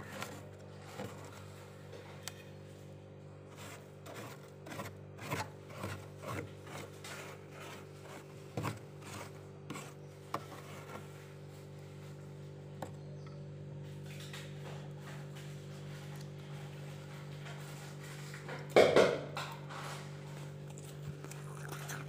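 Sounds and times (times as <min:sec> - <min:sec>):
scoop scraping freezer frost: 0:00.0 - 0:01.8, 0:03.4 - 0:12.3.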